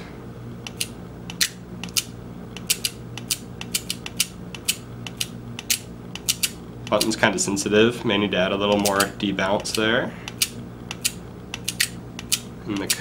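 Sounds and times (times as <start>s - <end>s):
steady low hum: 0.0s - 13.0s
flip-digit display clicking: 8.7s - 13.0s.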